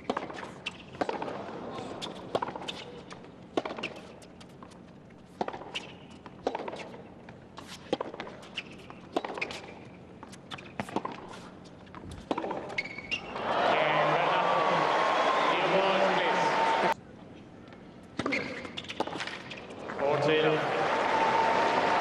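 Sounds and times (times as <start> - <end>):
racket hitting tennis ball: 0.0 - 1.4, 2.0 - 7.0, 7.6 - 12.9
ball bouncing: 11.9 - 13.0
crowd applause: 13.3 - 17.0, 20.2 - 22.0.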